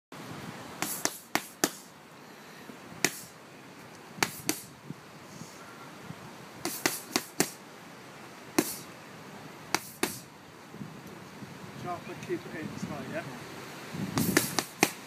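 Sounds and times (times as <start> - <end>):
boxing gloves slapping focus mitts: 0.8 - 1.9, 3.0 - 3.3, 4.2 - 4.7, 6.6 - 7.6, 8.6 - 8.8, 9.7 - 10.3, 14.2 - 15.0.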